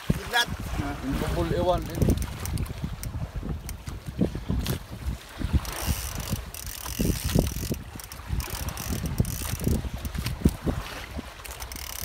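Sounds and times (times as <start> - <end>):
fishing reel ratcheting: 1.7 - 3.8, 5.6 - 10.6, 11.4 - 12.0.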